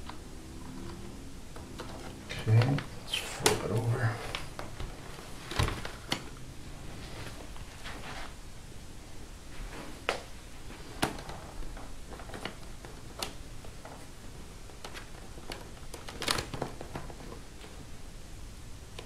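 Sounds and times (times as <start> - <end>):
clicks and handling noises: 10.0 - 17.8.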